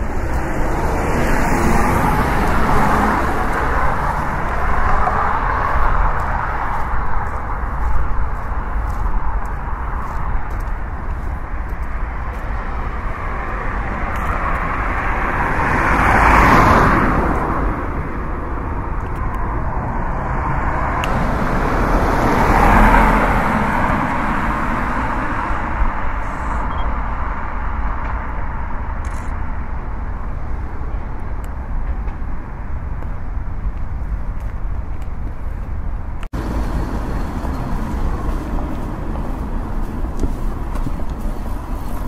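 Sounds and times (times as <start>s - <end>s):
road traffic hum: 0.0s - 42.0s
vehicles passing: 0.0s - 42.0s.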